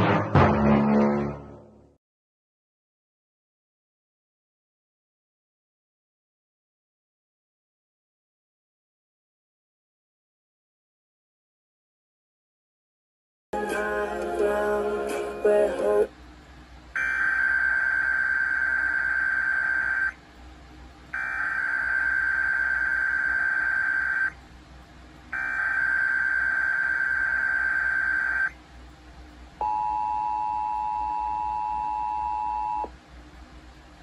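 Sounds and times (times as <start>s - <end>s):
screeching digital data tones: 17.0s - 20.2s, 21.2s - 24.4s, 25.4s - 28.6s
two-tone attention signal: 29.6s - 32.9s.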